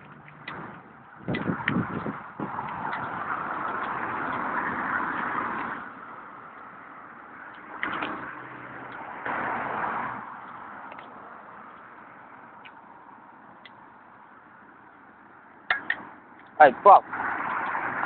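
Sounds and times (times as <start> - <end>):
bicycle riding rushing noise: 0.0 - 13.6.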